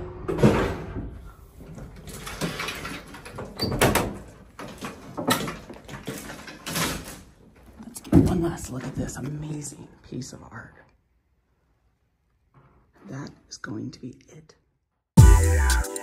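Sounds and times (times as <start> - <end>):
metal elevator gate clattering: 0.0 - 7.4.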